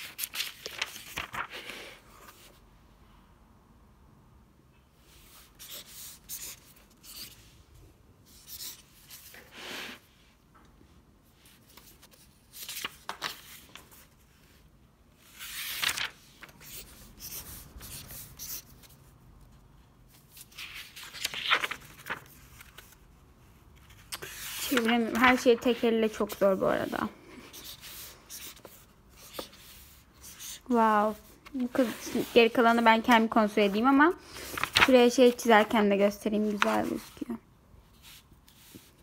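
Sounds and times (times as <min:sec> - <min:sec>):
paper pages rustling: 0:00.0 - 0:02.6, 0:11.5 - 0:14.6, 0:15.2 - 0:19.0, 0:20.1 - 0:37.3.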